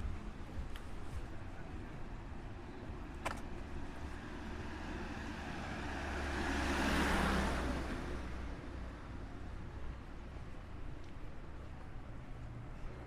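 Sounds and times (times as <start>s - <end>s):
low traffic rumble: 0.0s - 13.0s
car passing: 3.1s - 10.7s.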